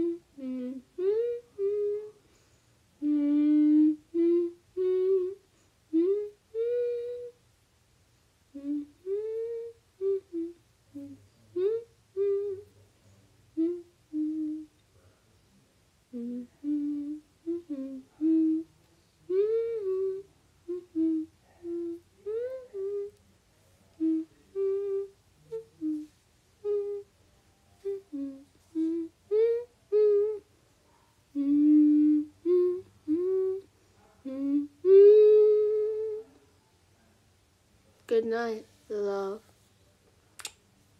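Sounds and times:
woman humming: 0:00.0 - 0:02.2, 0:03.0 - 0:07.4, 0:08.5 - 0:12.8, 0:13.6 - 0:14.8, 0:16.1 - 0:23.2, 0:23.9 - 0:27.1, 0:27.8 - 0:30.5, 0:31.3 - 0:36.4.

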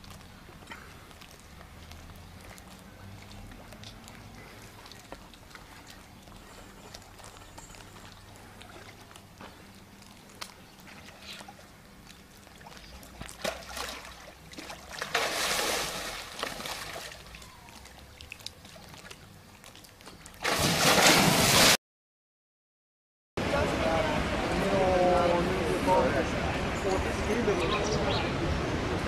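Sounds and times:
water lapping: 0:00.0 - 0:21.8
water splashing: 0:00.0 - 0:21.8.

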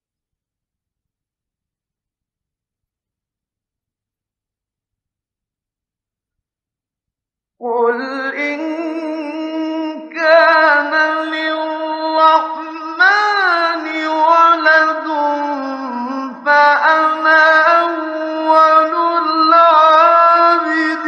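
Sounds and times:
man reciting in melodic chant: 0:07.6 - 0:21.0.

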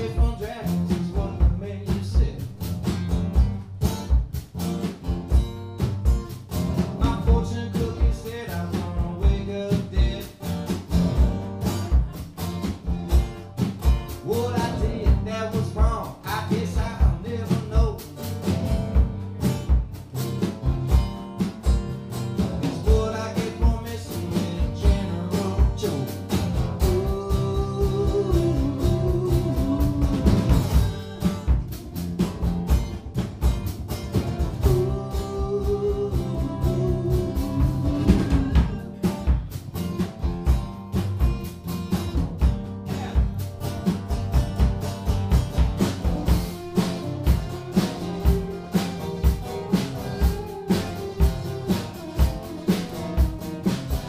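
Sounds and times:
man singing: 0:00.0 - 0:02.6, 0:06.9 - 0:10.4, 0:14.1 - 0:18.2, 0:22.6 - 0:31.3, 0:34.5 - 0:39.3, 0:42.8 - 0:43.4, 0:49.4 - 0:51.3
acoustic guitars strummed: 0:00.0 - 0:54.0
drum kit steady beat: 0:00.0 - 0:54.0.

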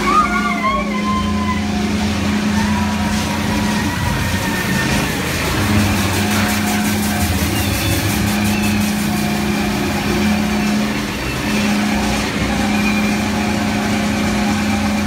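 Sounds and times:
humming drone: 0:00.0 - 0:15.0
ride car rumbling on track: 0:00.0 - 0:15.0.

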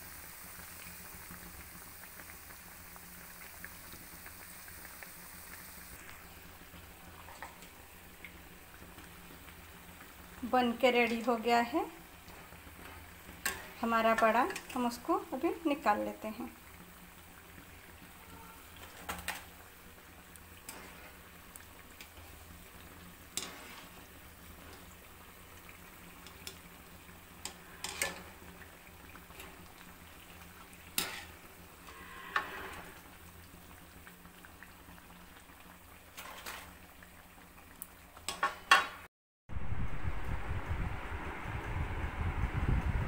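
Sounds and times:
food sizzling in hot oil: 0:00.0 - 0:39.8
wire skimmer clinking on pan: 0:27.4 - 0:28.4
loud low rumbling: 0:39.5 - 0:43.0.

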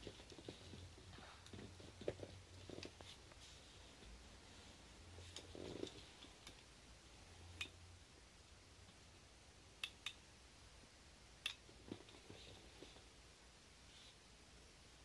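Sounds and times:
soft rustle: 0:00.0 - 0:07.6, 0:11.6 - 0:15.0.

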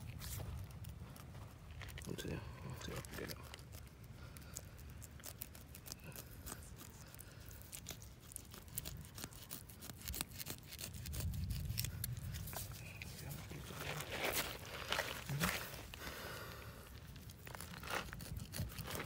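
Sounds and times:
knife cutting through tough skin: 0:05.0 - 0:13.4, 0:17.3 - 0:19.0.

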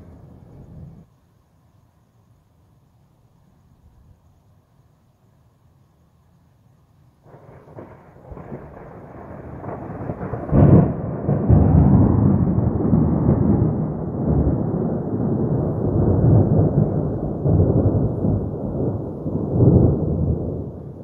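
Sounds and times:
thunder rumbling and cracking: 0:07.2 - 0:21.0.

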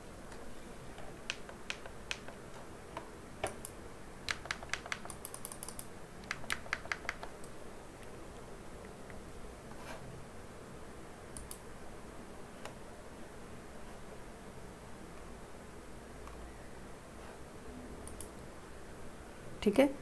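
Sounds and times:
faint steady hiss: 0:00.0 - 0:20.0
keyboard keys clicking: 0:03.4 - 0:07.6, 0:18.0 - 0:18.4.

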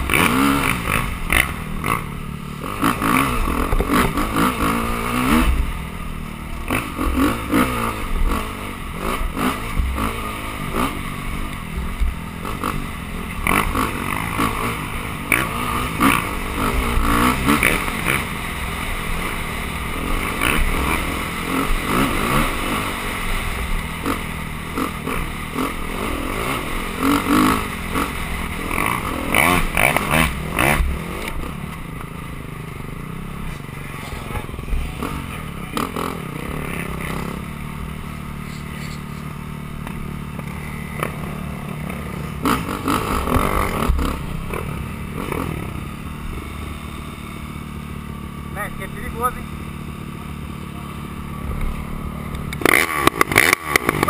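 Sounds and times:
dirt bike engine revving: 0:00.0 - 0:54.0
bike knocking and rattling: 0:49.6 - 0:54.0.

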